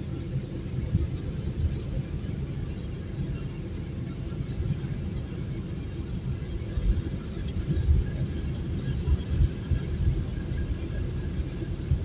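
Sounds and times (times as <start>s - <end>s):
road and engine rumble in truck cab: 0.0s - 12.0s.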